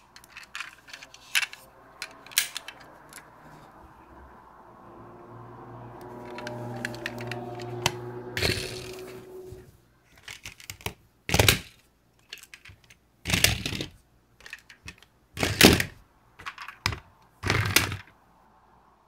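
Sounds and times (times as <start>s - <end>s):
clicks and knocks of toys: 0.0s - 3.3s, 10.1s - 18.1s
toy cars rattling over cloth: 0.0s - 3.7s, 10.1s - 18.1s.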